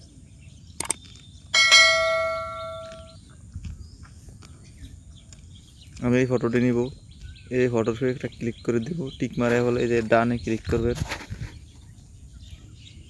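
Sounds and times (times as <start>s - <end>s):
bell ding: 1.6s - 3.2s.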